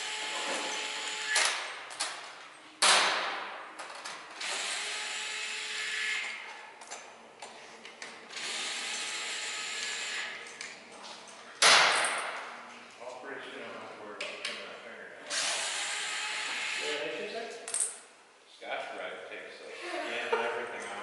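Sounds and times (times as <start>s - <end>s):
cordless drill driving screws: 4.4s - 6.4s, 8.3s - 10.3s, 15.3s - 16.9s.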